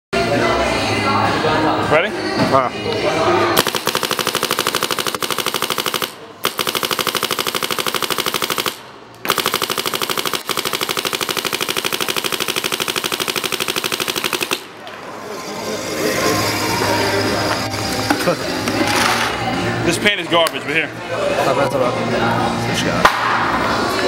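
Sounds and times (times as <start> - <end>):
paintball marker firing rapidly: 3.6 - 14.8.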